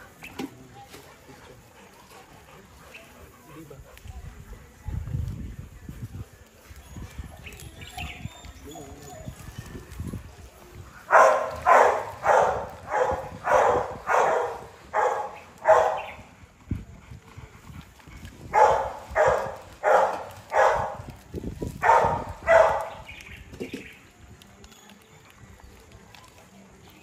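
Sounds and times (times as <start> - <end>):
dog barking: 11.1 - 16.2, 18.5 - 21.0, 21.8 - 23.0.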